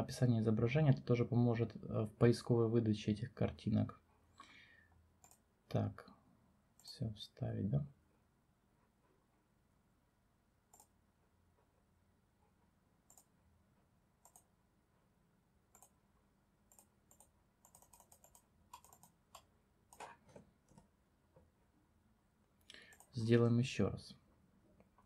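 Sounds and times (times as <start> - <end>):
computer mouse clicks: 5.2 - 5.4, 10.7 - 11.0, 13.0 - 13.3, 14.2 - 14.5, 15.7 - 16.0, 16.7 - 20.9, 22.8 - 23.2.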